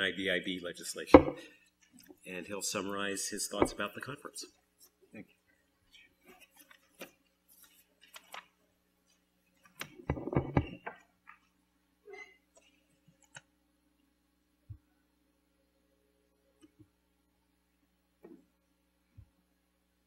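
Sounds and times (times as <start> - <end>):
microphone handling clicks and rustles: 9.6 - 11.5.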